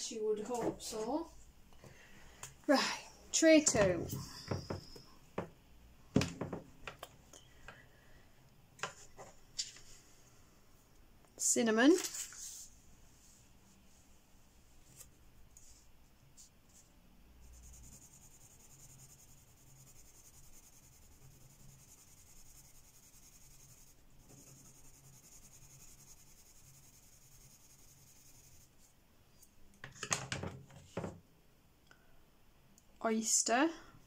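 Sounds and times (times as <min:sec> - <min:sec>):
pencil scratching on paper: 0:17.4 - 0:28.8.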